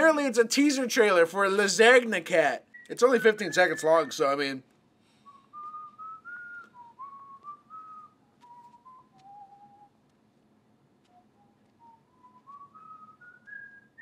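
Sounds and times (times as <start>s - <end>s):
person whistling a tune: 2.7s - 4.5s, 5.2s - 9.9s, 11.1s - 14.0s.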